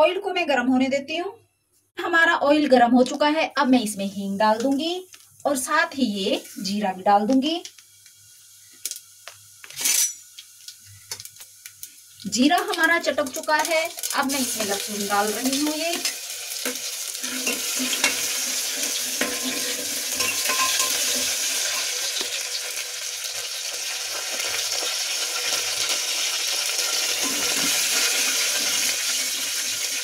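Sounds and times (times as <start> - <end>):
garlic sizzling in hot oil: 3.6 - 30.0
metal spoon scraping a pot: 17.2 - 21.9.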